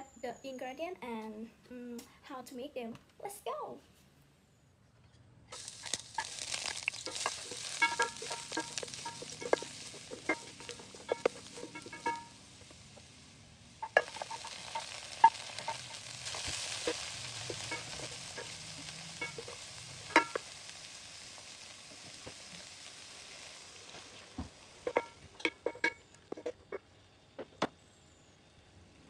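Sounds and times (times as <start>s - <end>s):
vegetables sizzling in hot oil: 5.5s - 27.9s
spatula scraping a pan: 5.6s - 13.0s, 13.8s - 20.6s, 21.4s - 26.8s.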